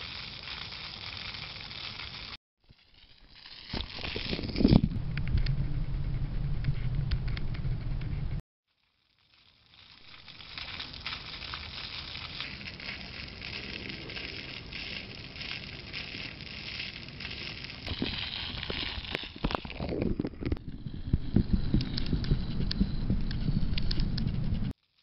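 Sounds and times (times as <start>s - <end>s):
fountain water splashing: 0.0s - 2.4s, 9.3s - 19.5s.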